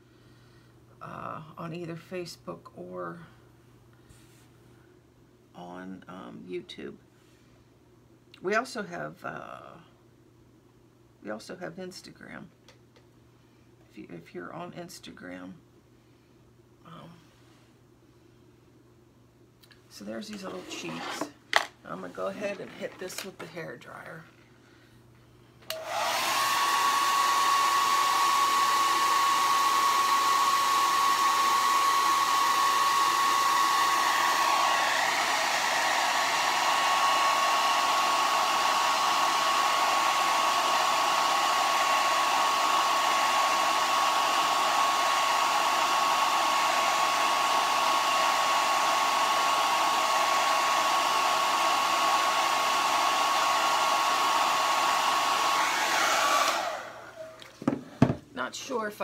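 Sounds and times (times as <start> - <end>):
hair dryer running: 20.0 - 23.6, 25.6 - 58.2.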